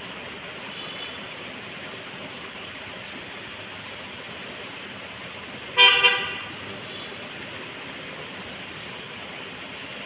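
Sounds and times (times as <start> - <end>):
rain falling on concrete: 0.0 - 10.0
vehicle horn honk: 5.8 - 7.1.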